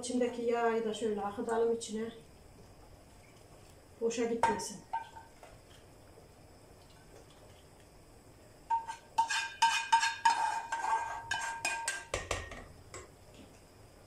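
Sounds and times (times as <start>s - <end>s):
metal spoon scraping pan: 8.7s - 12.4s.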